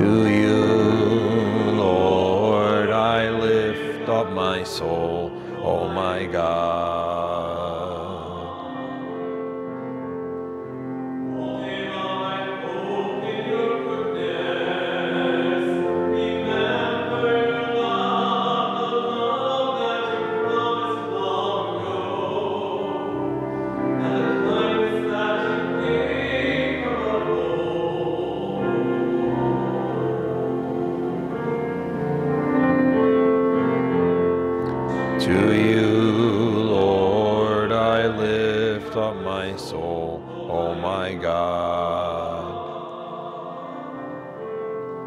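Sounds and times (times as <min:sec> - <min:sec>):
slow church singing: 0:00.0 - 0:45.0.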